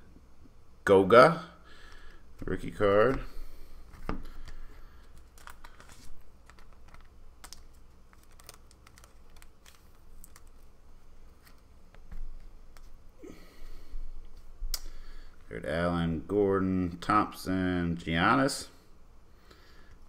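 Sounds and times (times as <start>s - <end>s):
trading cards flipped by hand: 3.9s - 10.7s, 11.3s - 13.0s.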